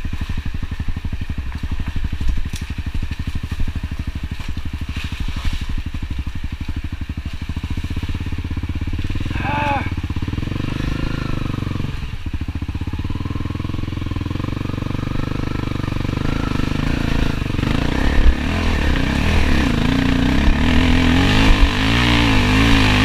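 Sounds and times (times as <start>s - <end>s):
dirt bike engine revving: 0.0s - 23.0s.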